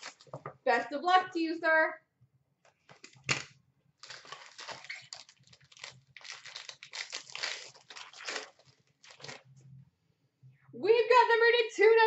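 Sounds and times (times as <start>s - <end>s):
foil wrapper crinkling: 0.0s - 0.5s, 4.0s - 9.5s.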